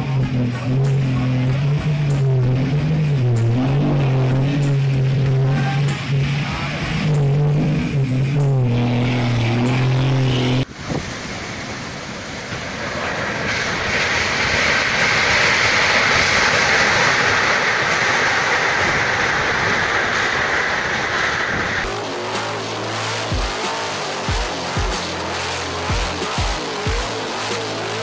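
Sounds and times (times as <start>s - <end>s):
music with low held notes: 0.0s - 10.6s, 21.9s - 28.0s
wind: 0.0s - 28.0s
heavy rain: 16.4s - 28.0s.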